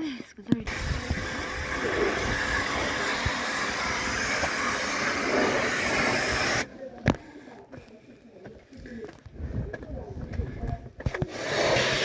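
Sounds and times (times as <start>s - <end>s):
pressure washer spraying stone: 0.6s - 6.7s, 11.0s - 12.0s.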